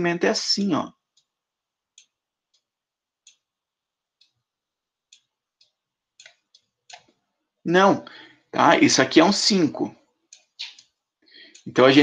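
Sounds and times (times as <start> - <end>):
computer mouse clicks: 1.9 - 3.5, 5.1 - 7.2, 10.3 - 11.8.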